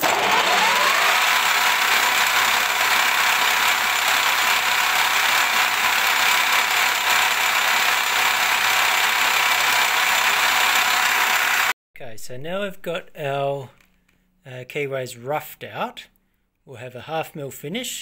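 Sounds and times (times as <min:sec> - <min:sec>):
milling cutter grinding steel: 0:00.0 - 0:11.7.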